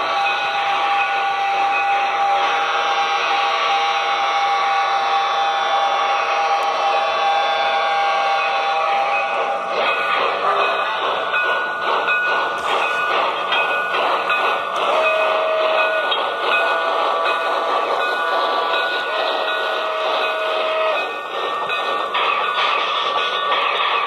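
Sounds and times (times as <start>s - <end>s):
steam whistle: 0.0s - 9.7s, 14.8s - 21.1s
steam locomotive chugging: 0.0s - 24.0s.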